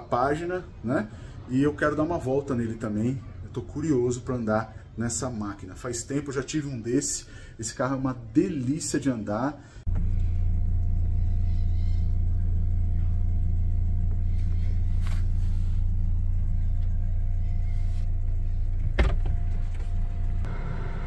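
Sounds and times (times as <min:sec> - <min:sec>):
car engine running: 0:09.9 - 0:21.0.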